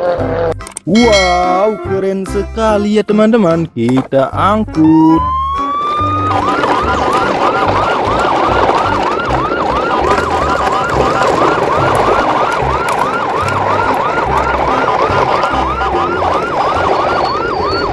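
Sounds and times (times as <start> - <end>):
electronic siren wailing: 4.8 - 17.9.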